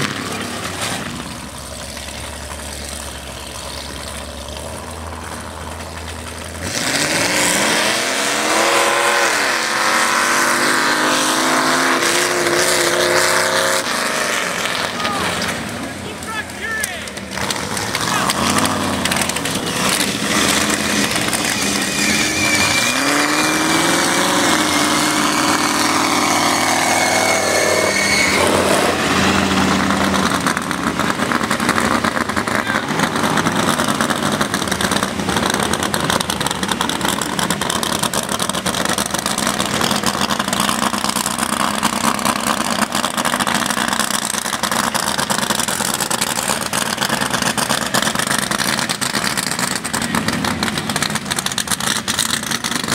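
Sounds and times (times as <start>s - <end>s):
truck engines revving: 0.0s - 52.9s.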